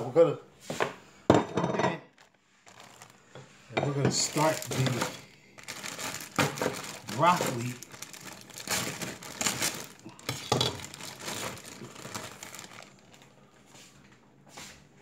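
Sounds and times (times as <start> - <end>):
plastic bag crinkling: 2.0 - 13.7.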